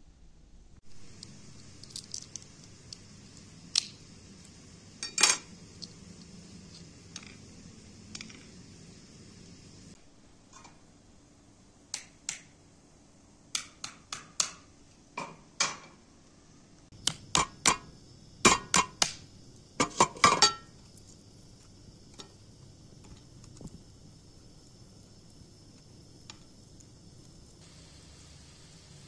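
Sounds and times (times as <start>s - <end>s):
walnut shells cracking: 1.1s - 4.6s.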